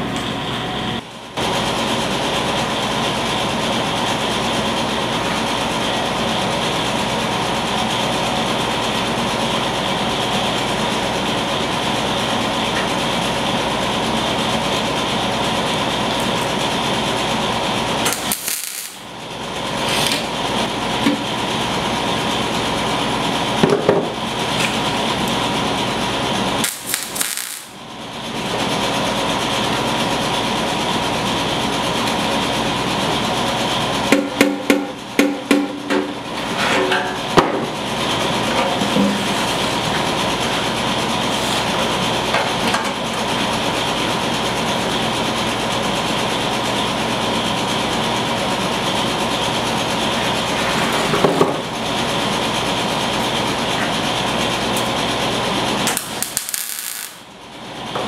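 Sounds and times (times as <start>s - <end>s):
arc welder hissing: 17.8s - 19.2s, 26.5s - 27.8s, 55.8s - 57.3s.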